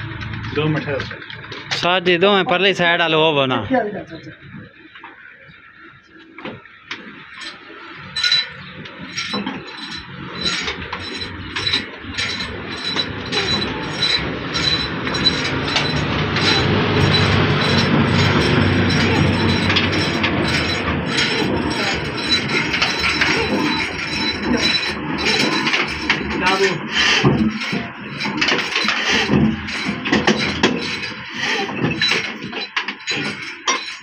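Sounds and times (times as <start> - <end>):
diesel engine clattering: 0.0 - 4.1, 6.9 - 34.0.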